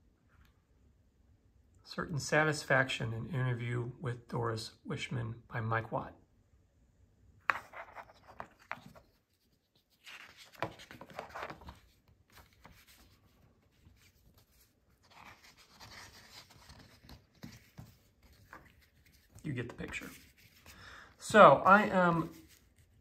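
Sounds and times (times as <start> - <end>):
paper pages rustling: 7.5 - 20.8, 21.8 - 23.0.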